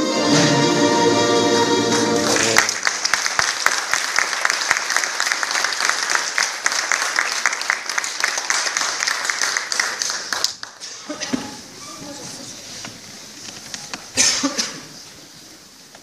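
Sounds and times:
orchestra chord: 0.0s - 2.6s
audience applauding: 2.0s - 11.7s.

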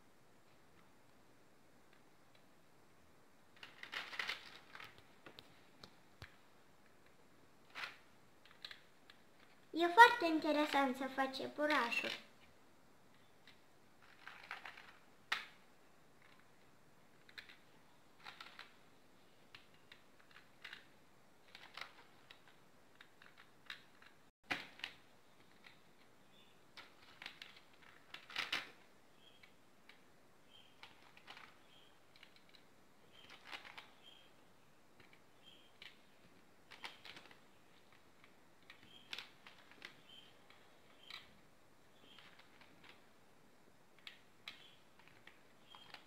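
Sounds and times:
plastic beads clicking and rattling: 3.5s - 5.5s, 13.4s - 15.6s.

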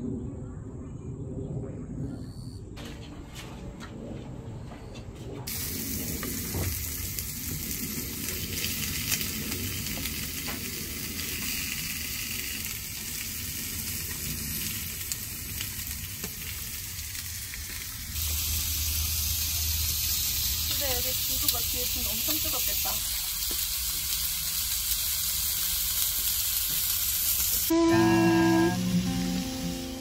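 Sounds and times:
meat sizzling on a grill: 5.5s - 30.0s.

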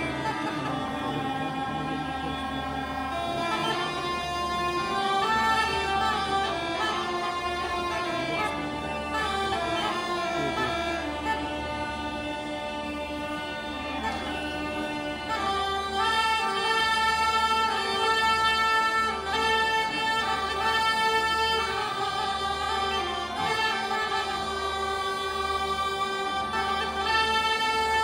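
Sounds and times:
bagpipes playing folk melody: 0.0s - 28.0s.

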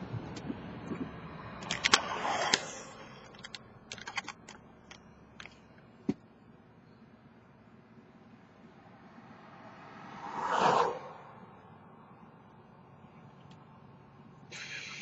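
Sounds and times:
car road noise inside cabin: 0.0s - 15.0s.

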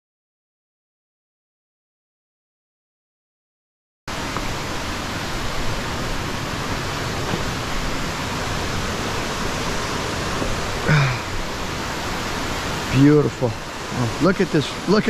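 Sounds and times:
river water rushing over rocks: 4.1s - 15.0s
person's voice: 12.9s - 15.0s.

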